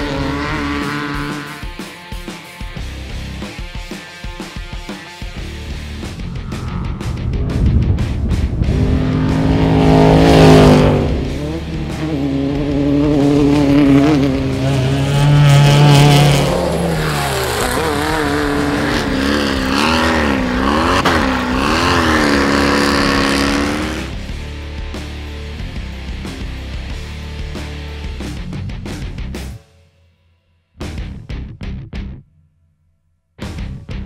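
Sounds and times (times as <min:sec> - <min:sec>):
race vehicle engines revving: 0:00.0 - 0:01.8, 0:05.4 - 0:24.5
vehicle passing by: 0:06.0 - 0:24.1.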